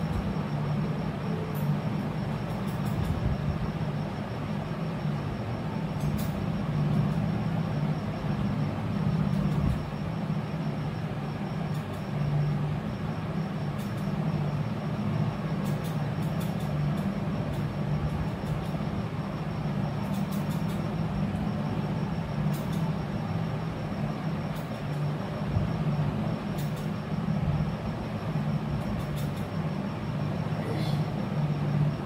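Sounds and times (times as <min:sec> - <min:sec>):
low machine hum: 0:00.0 - 0:32.0
rushing background noise: 0:00.0 - 0:32.0.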